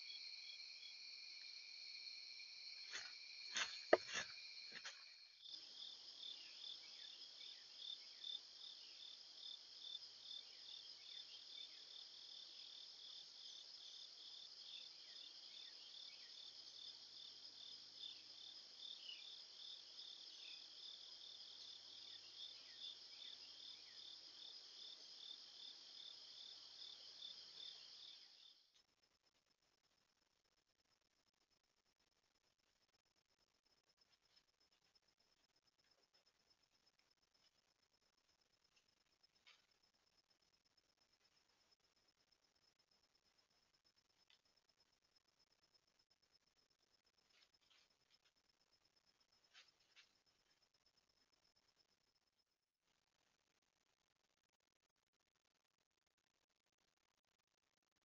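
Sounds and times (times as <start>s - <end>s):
insect chorus trilling: 0.0s - 28.6s.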